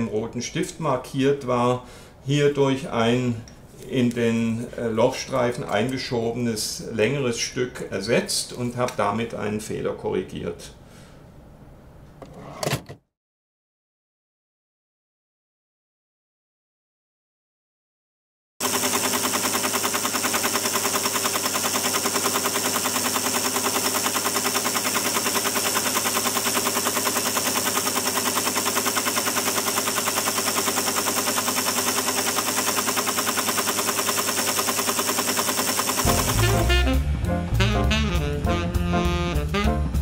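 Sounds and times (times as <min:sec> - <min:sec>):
paper tape reader clattering: 0:18.6 - 0:36.6
jazz music: 0:36.0 - 0:40.0.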